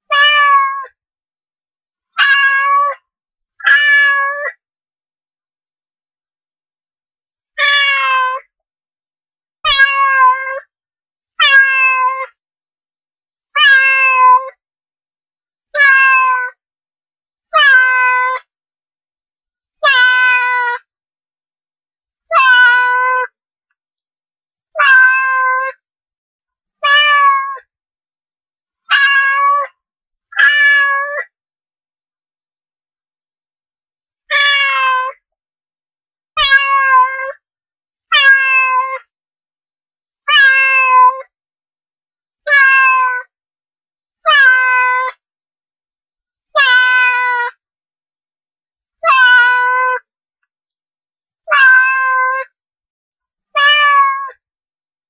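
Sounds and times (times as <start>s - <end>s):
cat meowing: 0.1s - 0.9s, 2.2s - 3.0s, 3.6s - 4.5s, 7.6s - 8.5s, 9.7s - 10.7s, 11.4s - 12.4s, 13.6s - 14.6s, 15.7s - 16.6s, 17.6s - 18.5s, 19.8s - 20.8s, 22.3s - 23.3s, 24.8s - 25.8s, 26.8s - 27.6s, 28.9s - 29.8s, 30.4s - 31.3s, 34.3s - 35.2s, 36.4s - 37.4s, 38.1s - 39.1s, 40.3s - 41.3s, 42.4s - 43.3s, 44.3s - 45.2s, 46.6s - 47.6s, 49.0s - 50.1s, 51.5s - 52.5s, 53.5s - 54.4s.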